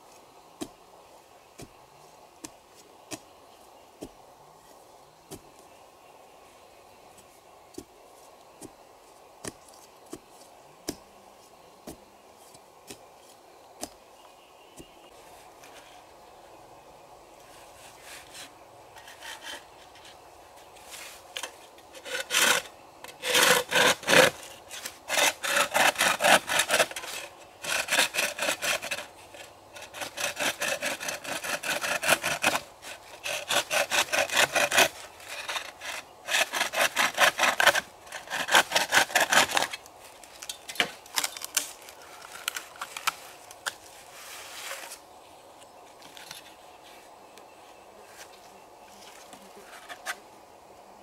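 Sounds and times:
hand saw cutting bamboo: 17.9s - 20.0s, 21.4s - 39.8s.

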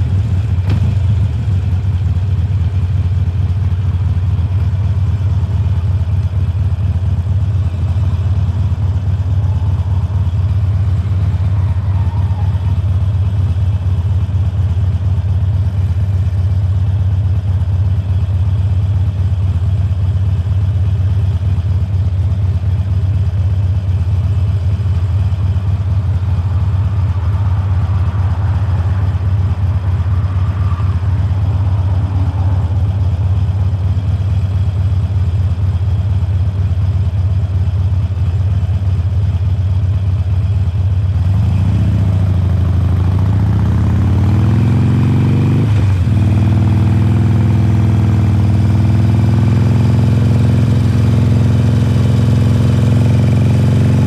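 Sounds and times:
motorcycle engine idling and revving: 0.0s - 54.0s.

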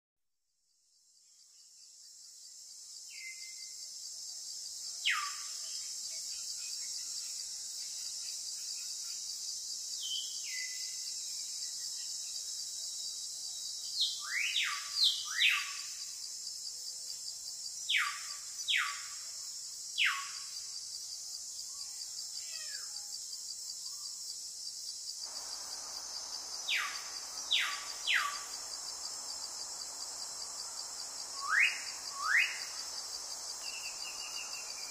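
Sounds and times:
insects chirring: 1.0s - 34.9s
soft background hiss: 24.6s - 34.9s
falling bird whistles: 31.4s - 32.7s.

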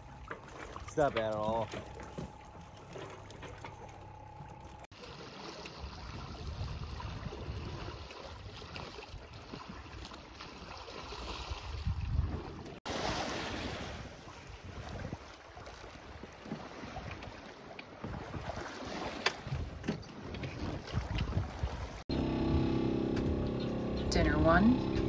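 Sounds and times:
water sloshing around a boat: 0.0s - 25.0s
wind on microphone: 6.0s - 9.8s, 11.4s - 12.8s, 14.0s - 15.3s, 19.4s - 22.7s.

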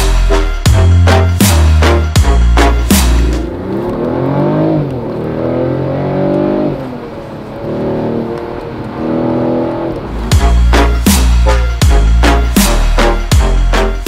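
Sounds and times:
beat music with heavy bass: 0.0s - 4.9s, 10.0s - 14.0s
car engine accelerating: 0.7s - 14.0s.

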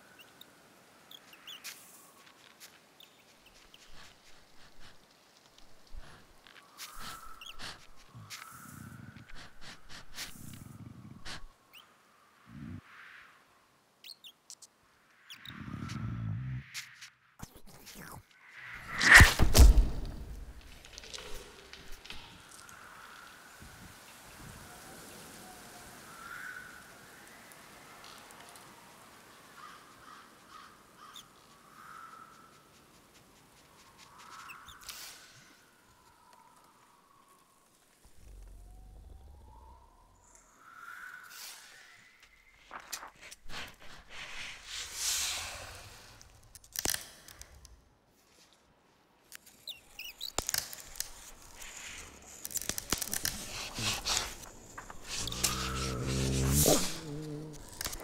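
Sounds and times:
low steady hiss: 0.0s - 15.5s, 19.6s - 34.2s
dry leaf rustling and crackling: 50.4s - 58.0s.

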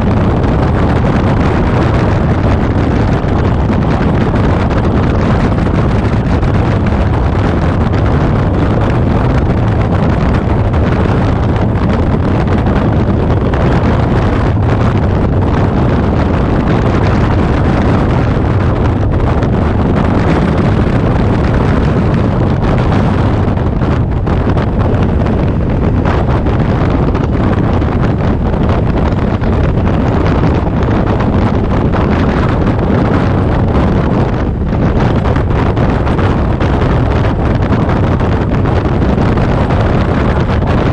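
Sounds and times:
road noise: 0.0s - 40.9s
wind rush on microphone: 0.0s - 40.9s.

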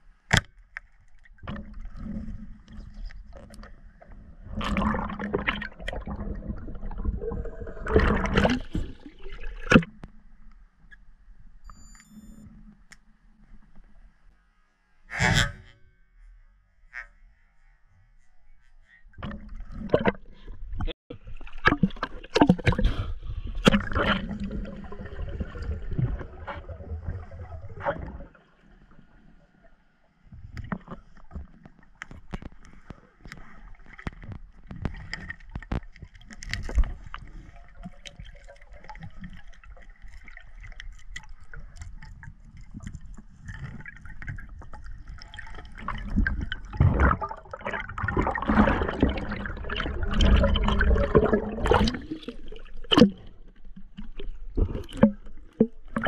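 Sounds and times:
underwater gurgling and bubbling: 1.4s - 10.0s, 19.2s - 29.2s, 34.1s - 56.0s
water splashing: 4.4s - 10.0s, 30.7s - 56.0s
sharp underwater clicks and knocks: 30.4s - 37.2s, 52.8s - 56.0s.

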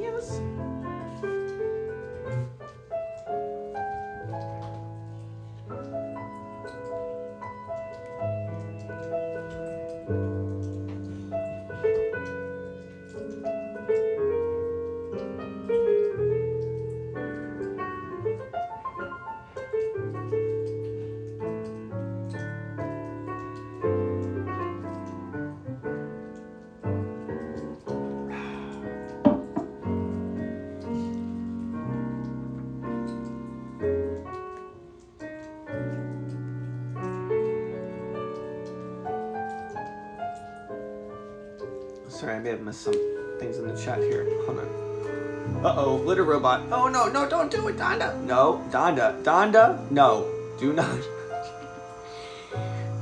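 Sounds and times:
slow piano music: 0.0s - 53.0s.

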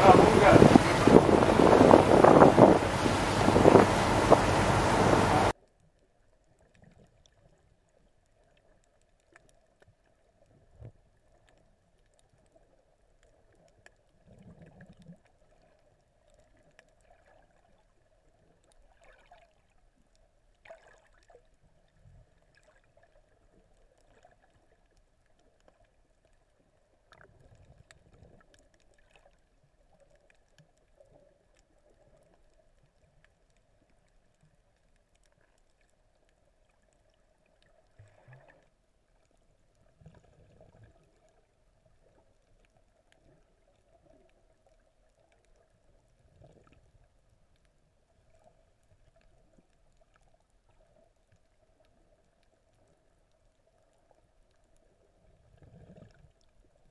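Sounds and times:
dull low thumps: 0.0s - 5.5s
faint underwater hum: 0.0s - 56.9s.

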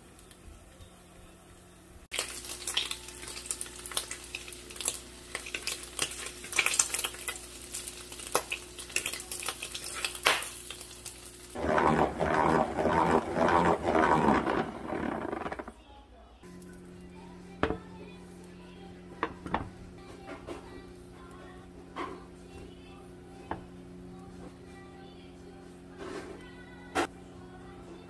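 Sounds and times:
bacon sizzling in a frying pan: 2.1s - 11.8s
salad spinner whirring: 11.6s - 15.8s.

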